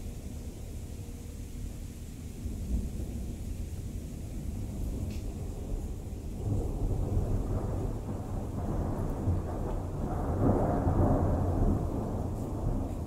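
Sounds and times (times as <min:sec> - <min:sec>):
thunder rumbling: 0:00.0 - 0:13.0.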